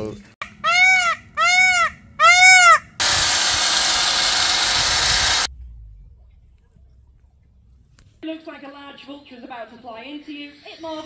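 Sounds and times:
peacock calling: 0.4s - 3.1s.

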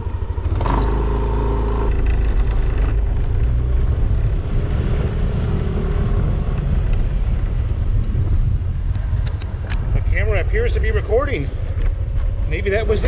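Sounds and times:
motorcycle engine running: 0.0s - 5.0s
wind rumbling on microphone: 0.0s - 13.0s.

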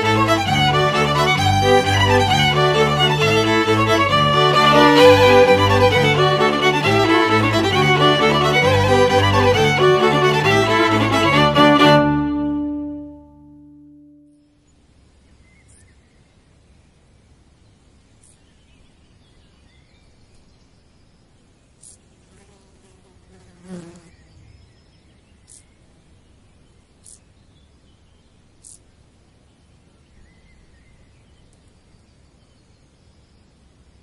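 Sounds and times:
fiddle and cello tune: 0.0s - 14.4s
insects buzzing: 21.7s - 24.4s
fly buzzing past: 21.8s - 24.3s.

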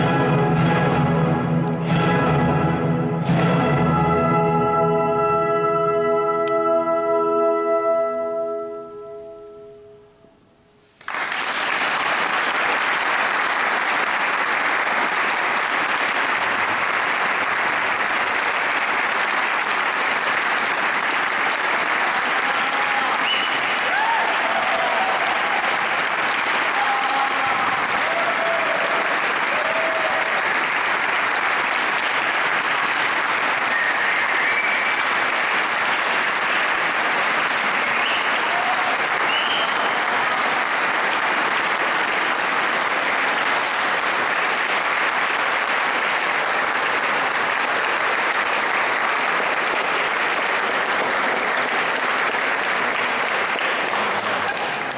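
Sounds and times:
audience applauding: 11.0s - 54.9s
audience cheering: 11.1s - 45.9s, 50.8s - 54.9s.

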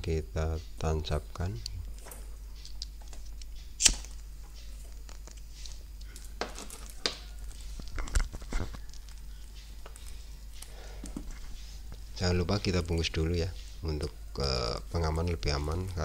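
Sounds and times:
low steady hum: 0.0s - 16.0s
sharp click: 3.5s - 4.1s
plastic bag crinkling: 4.9s - 13.4s.

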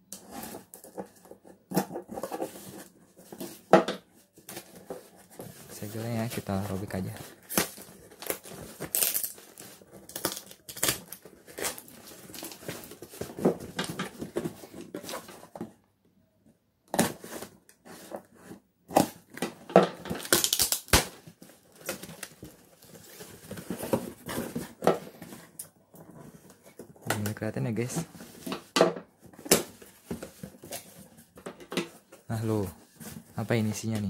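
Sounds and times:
box handling scraping: 11.1s - 15.7s, 21.8s - 28.7s.

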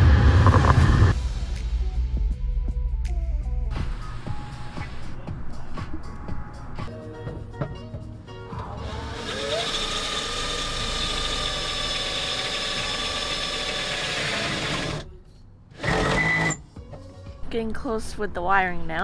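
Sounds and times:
cordless drill motor whining: 8.8s - 15.0s.

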